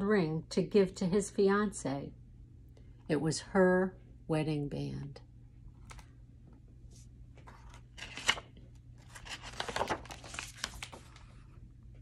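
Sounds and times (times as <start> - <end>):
book page turning: 5.8 - 6.1, 6.9 - 11.5.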